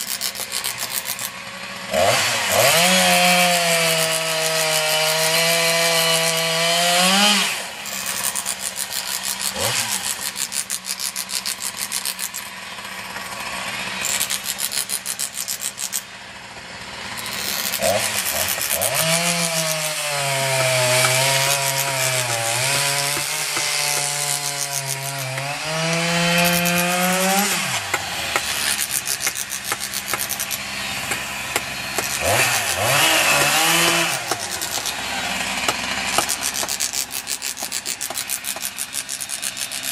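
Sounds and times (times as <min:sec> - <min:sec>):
chainsaw cutting into log: 0:00.0 - 0:39.9
rasping wood cutting noise: 0:00.0 - 0:39.9.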